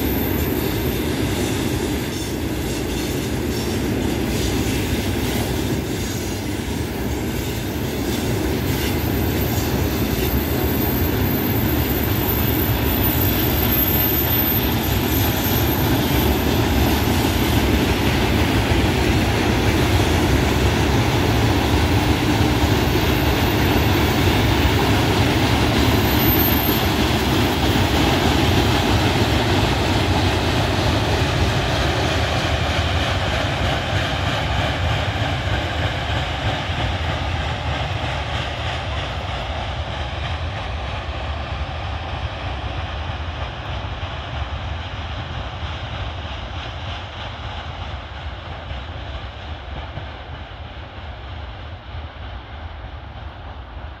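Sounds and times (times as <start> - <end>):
train wheels rumbling on track: 0.0 - 54.0.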